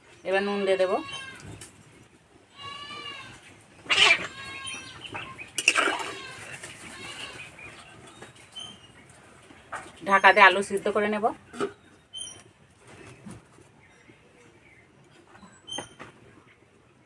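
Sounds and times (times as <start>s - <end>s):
domestic animal calling: 2.6s - 7.5s.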